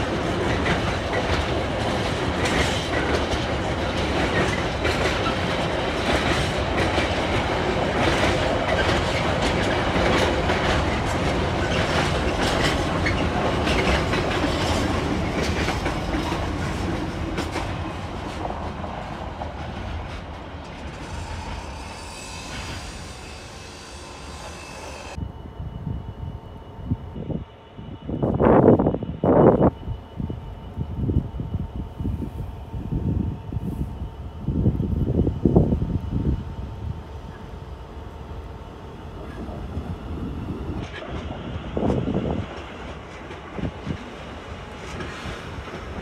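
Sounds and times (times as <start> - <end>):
freight train wheels clattering: 0.0 - 25.2, 38.9 - 46.0.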